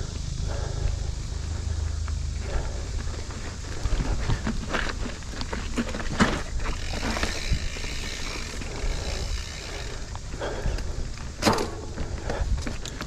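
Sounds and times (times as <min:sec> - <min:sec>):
steady low rumble: 0:00.0 - 0:13.0
bike rattling and knocking: 0:01.4 - 0:13.0
tyres crunching on rocks: 0:03.0 - 0:09.3.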